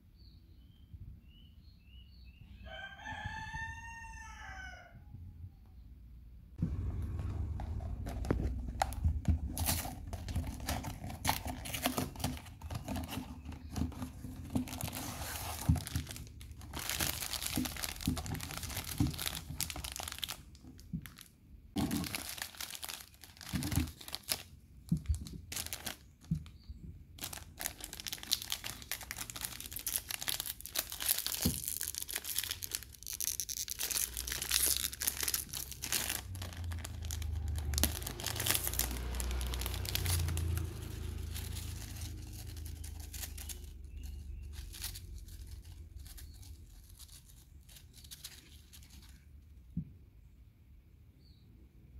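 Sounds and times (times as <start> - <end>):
cardboard boxes handled: 6.7 - 20.3
foil packets crinkling: 7.2 - 26.6, 27.2 - 49.3
foil packet tearing open: 7.6 - 26.4, 27.2 - 49.2.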